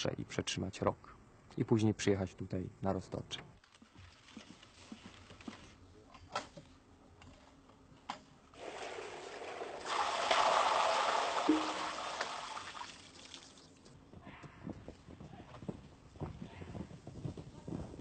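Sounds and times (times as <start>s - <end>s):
rushing splashing water: 9.4s - 13.4s.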